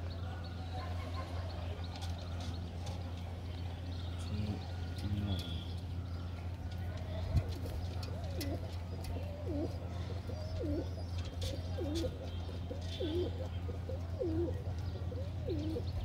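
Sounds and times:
pigeon cooing: 7.2 - 16.0.

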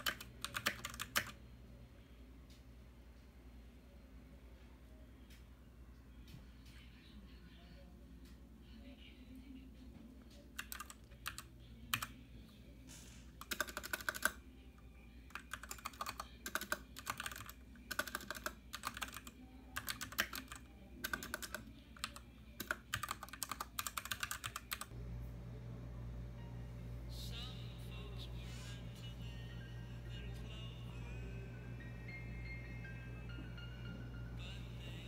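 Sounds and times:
mechanical keyboard typing: 0.0 - 1.4, 10.5 - 12.1, 13.4 - 14.4, 15.3 - 24.9.

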